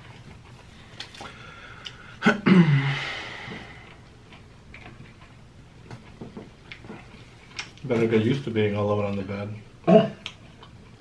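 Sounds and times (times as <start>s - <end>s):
man's breathy exhale: 2.7s - 3.9s.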